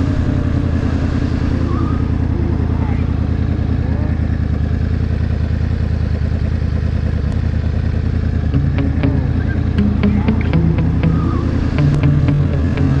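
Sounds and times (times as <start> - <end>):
motorcycle engine running steadily: 0.0 - 13.0
musical notes: 8.6 - 13.0.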